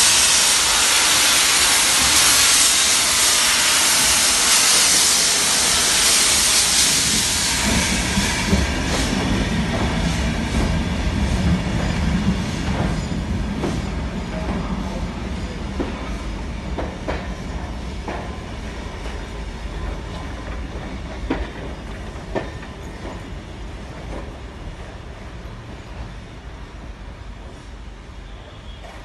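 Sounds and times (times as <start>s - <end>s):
steam hiss from cylinder drains: 0.0s - 10.6s
train wheels clacking over rail joints: 0.0s - 14.7s, 15.7s - 24.5s.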